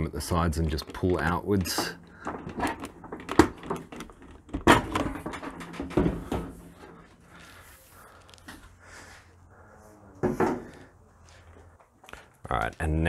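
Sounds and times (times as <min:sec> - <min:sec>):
clips knocking and clacking: 0:00.3 - 0:07.0
metal rattling: 0:00.3 - 0:07.2.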